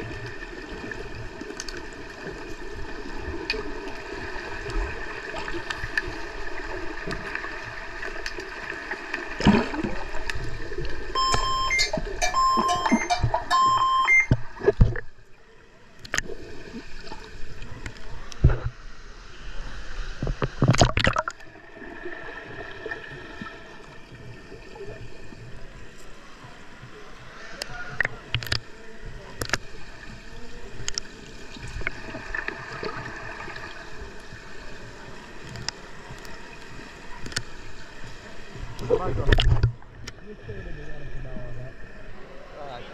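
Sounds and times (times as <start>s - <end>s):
water splashes: 0.0s - 42.5s
underwater bubbling hum: 0.0s - 42.9s
high electronic beeps: 11.2s - 14.4s.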